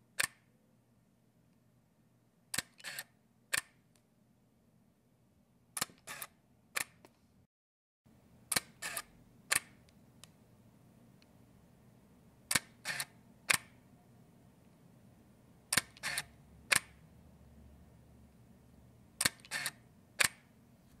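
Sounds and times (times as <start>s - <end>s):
camera shutter clicks: 2.6s - 3.6s, 5.8s - 6.9s, 8.5s - 9.7s, 12.5s - 13.7s, 15.7s - 16.8s, 19.2s - 20.4s.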